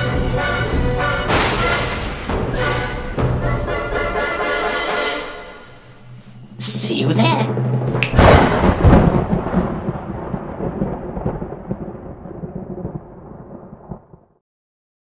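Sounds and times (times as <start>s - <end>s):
thunderclap with long rumble: 0.0s - 4.1s, 6.5s - 14.4s.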